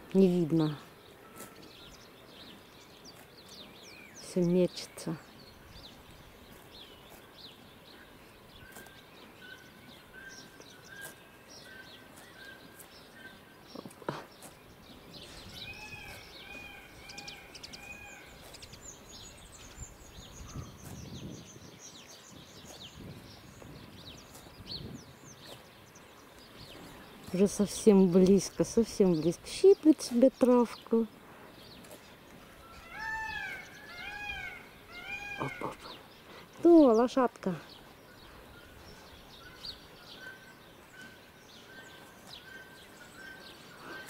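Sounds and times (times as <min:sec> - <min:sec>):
songbirds chirping: 0:00.0 - 0:44.0.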